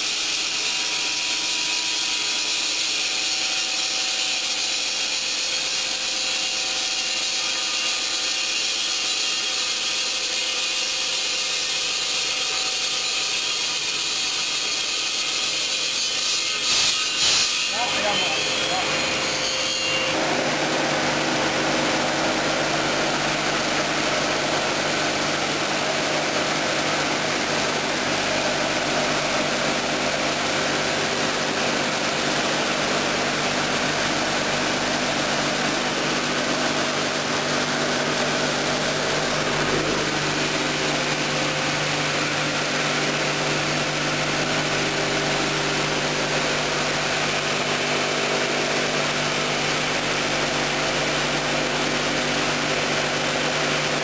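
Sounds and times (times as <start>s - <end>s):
saw cutting stone hiss: 0.0s - 53.2s
blade motor hum: 16.8s - 54.0s.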